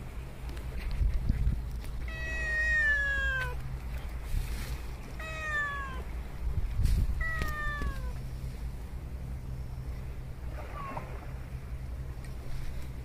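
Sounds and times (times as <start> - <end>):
cat meowing: 2.1 - 3.6, 5.2 - 6.1, 7.2 - 8.2.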